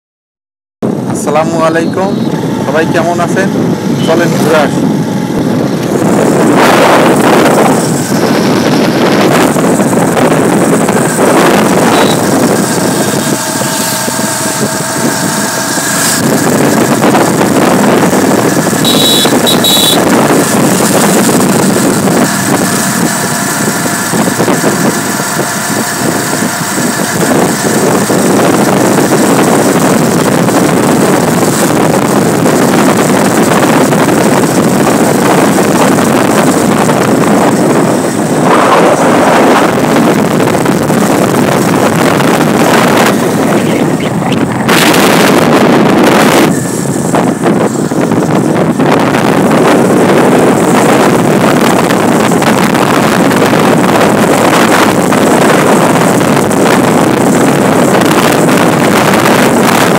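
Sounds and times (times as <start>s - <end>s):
vehicle engine hum: 0.8s - 59.9s
wind rushing over microphone: 0.8s - 59.9s
brief high-pitched tone: 1.8s - 2.7s, 11.8s - 12.3s, 18.8s - 20.1s.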